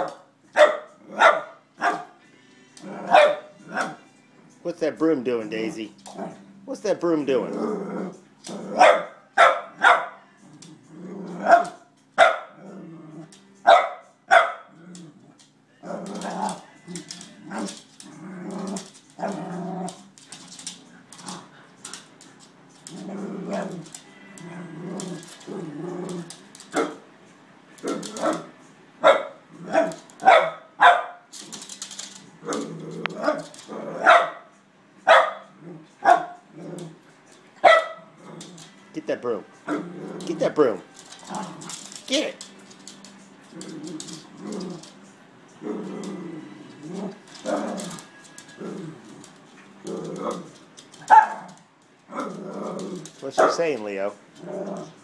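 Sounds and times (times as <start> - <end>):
small dog barking: 0.0 - 2.1, 3.1 - 3.9, 8.8 - 10.2, 13.7 - 14.7, 29.0 - 31.2, 34.0 - 34.4, 35.1 - 36.4, 37.6 - 38.1, 51.1 - 51.5
dog growling: 2.8 - 3.9, 5.6 - 6.6, 7.3 - 8.8, 10.3 - 11.7, 12.6 - 13.4, 14.7 - 20.1, 22.9 - 26.4, 29.5 - 30.0, 32.1 - 34.1, 35.5 - 37.0, 38.0 - 38.8, 39.6 - 42.0, 43.4 - 50.6, 52.1 - 53.2, 54.3 - 55.0.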